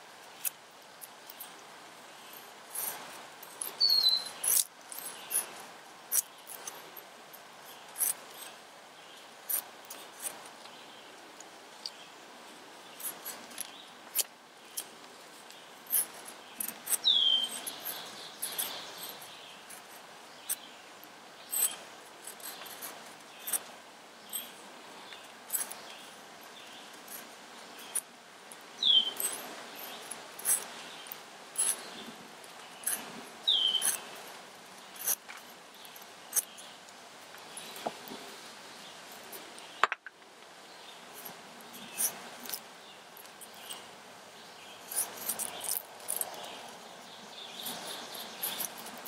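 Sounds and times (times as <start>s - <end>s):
knife scraping wooden stick: 2.2s - 7.0s, 15.5s - 20.6s, 32.6s - 34.3s, 44.8s - 46.5s, 47.6s - 49.0s.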